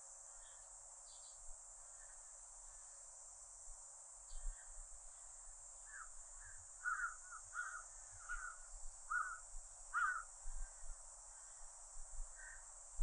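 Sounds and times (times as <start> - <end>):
cicadas droning: 0.0 - 13.0
bird harsh calls: 5.9 - 9.4, 10.0 - 10.3.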